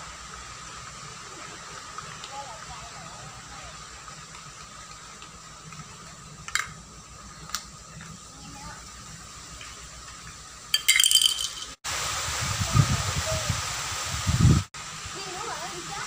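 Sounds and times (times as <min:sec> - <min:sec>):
background hiss: 0:00.0 - 0:16.0
sharp clinks with ring: 0:10.8 - 0:11.8.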